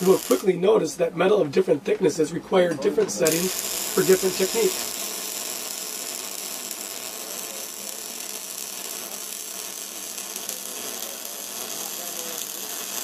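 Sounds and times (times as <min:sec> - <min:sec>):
welder arc crackling: 0:00.0 - 0:00.5, 0:03.2 - 0:13.0.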